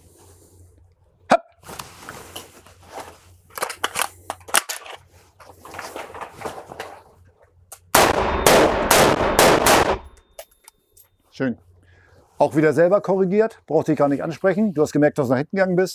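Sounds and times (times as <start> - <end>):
rifle handling clicks: 3.5 - 5.0
rapid rifle shots echoing: 8.0 - 10.2.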